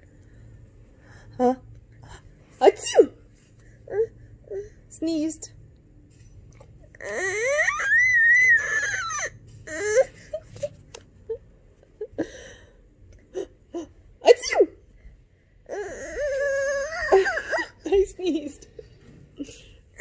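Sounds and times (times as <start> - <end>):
baby crying: 7.0 - 10.1.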